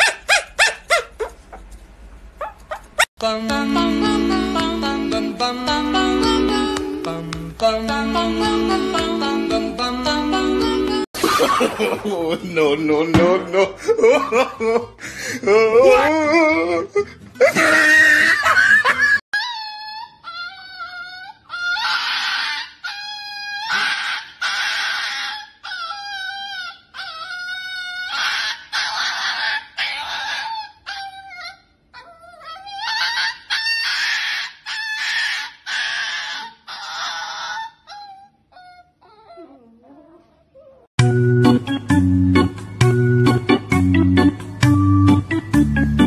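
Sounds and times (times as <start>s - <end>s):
small dog whining and squealing: 0.0s - 1.7s, 2.4s - 3.1s, 19.4s - 40.9s.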